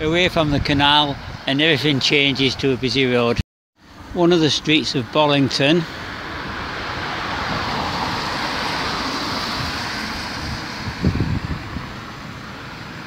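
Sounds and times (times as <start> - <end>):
car driving past: 5.8 - 13.0.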